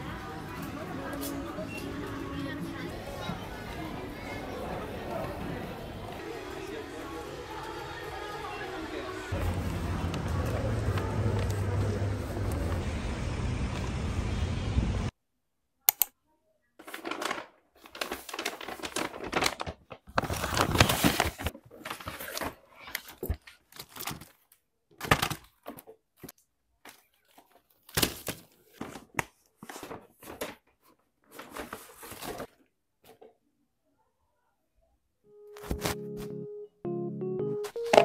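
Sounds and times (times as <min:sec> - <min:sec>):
plastic bag rustling and crinkling: 0:16.8 - 0:24.5.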